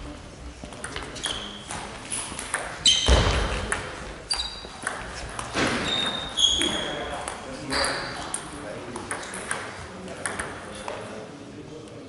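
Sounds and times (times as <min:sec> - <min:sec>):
table tennis ball clicking: 0:02.4 - 0:02.8, 0:04.8 - 0:05.5, 0:08.2 - 0:10.6.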